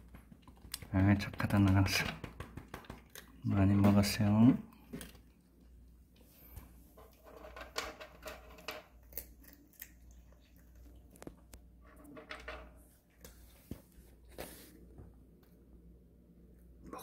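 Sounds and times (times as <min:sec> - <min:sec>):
cat crunching dry treats: 0:07.2 - 0:11.6.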